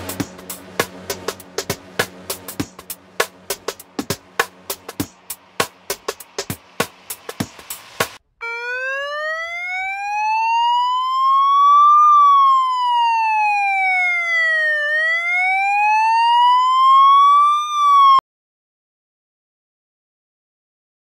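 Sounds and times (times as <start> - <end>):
police siren wailing: 8.4 - 18.2.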